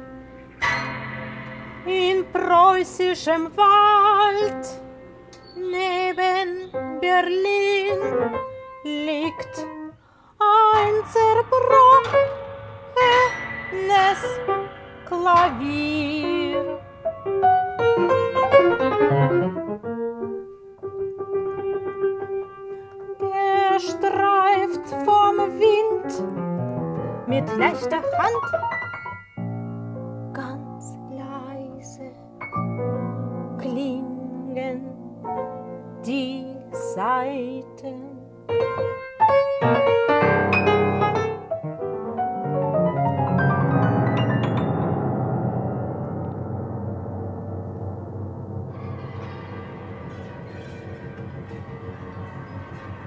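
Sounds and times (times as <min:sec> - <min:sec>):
grand piano playing: 0:00.0 - 0:53.0
woman singing: 0:01.8 - 0:04.8, 0:05.4 - 0:12.4, 0:13.0 - 0:16.8, 0:23.2 - 0:26.3, 0:27.3 - 0:28.4, 0:30.3 - 0:32.3, 0:33.6 - 0:35.2, 0:36.0 - 0:38.4.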